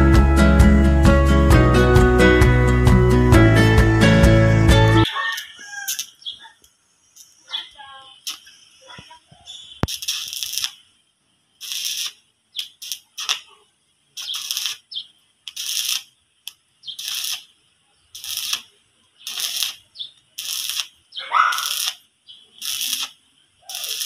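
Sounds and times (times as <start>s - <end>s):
welding arc crackling: 5.3s - 24.0s.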